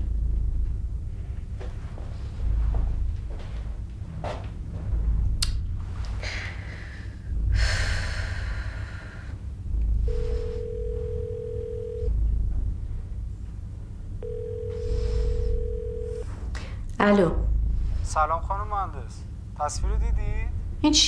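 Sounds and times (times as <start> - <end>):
low rumble: 0.0 - 21.0
phone ringtone tone: 10.1 - 12.1, 14.2 - 16.3.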